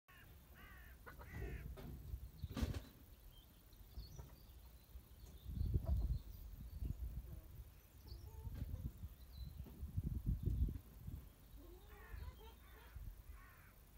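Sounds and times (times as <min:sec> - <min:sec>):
chickens warbling calls: 0:00.1 - 0:02.1, 0:11.3 - 0:13.9.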